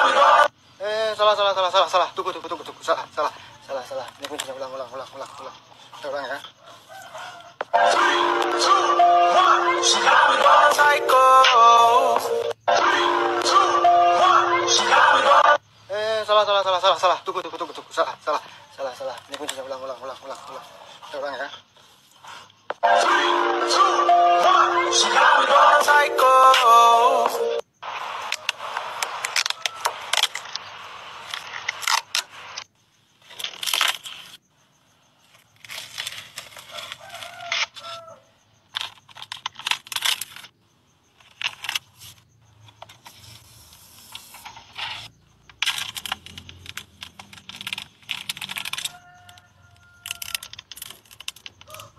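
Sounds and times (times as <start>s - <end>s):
plastic film peeling and crinkling: 28.9s - 34.4s, 35.2s - 37.7s, 38.8s - 40.6s, 42.9s - 49.2s, 50.1s - 51.8s.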